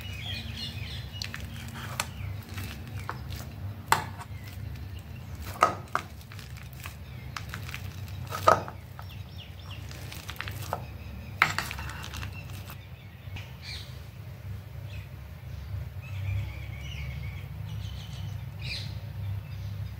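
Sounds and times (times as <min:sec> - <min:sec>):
bananas squashing under masher: 0:00.0 - 0:12.8
masher clinking on metal bowl: 0:11.4 - 0:12.8.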